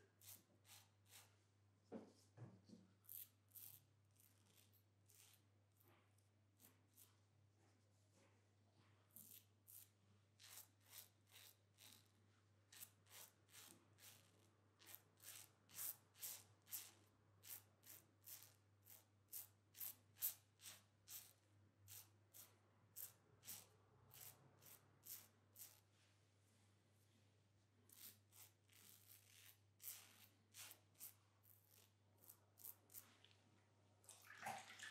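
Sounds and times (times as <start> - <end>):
razor scraping stubble: 3.1 - 5.4, 9.1 - 12.1, 27.9 - 33.2.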